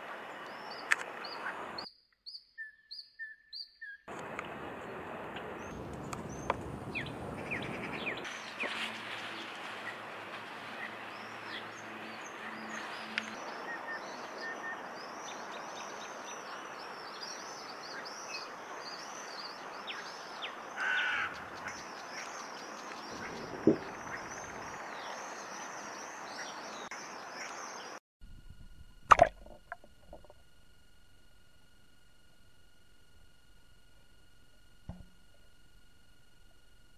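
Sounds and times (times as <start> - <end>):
steady outdoor hiss: 0.0 - 1.9, 4.1 - 36.9
birds chirping: 0.0 - 28.0
faint electronic whine: 4.1 - 36.9
sharp knock: 34.9 - 35.2.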